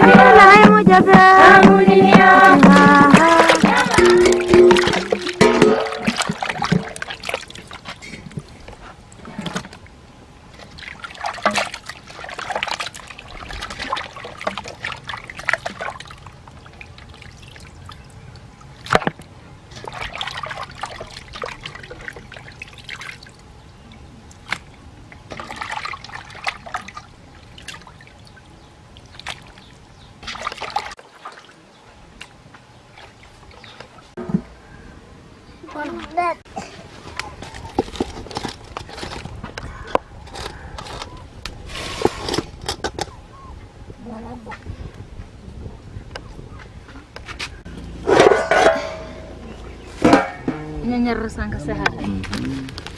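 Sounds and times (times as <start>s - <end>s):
water sloshing in metal basin: 0.3s - 34.6s, 36.8s - 41.1s, 47.6s - 52.4s
knocks against metal basin: 0.6s - 7.0s, 48.1s - 49.4s, 50.0s - 50.7s.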